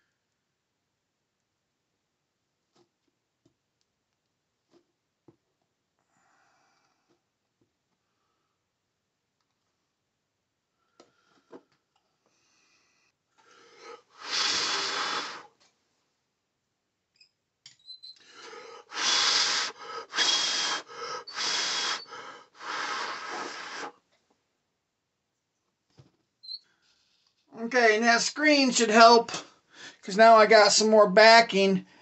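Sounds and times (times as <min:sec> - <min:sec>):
man blowing hard: 0:13.7 - 0:15.5, 0:18.3 - 0:24.0.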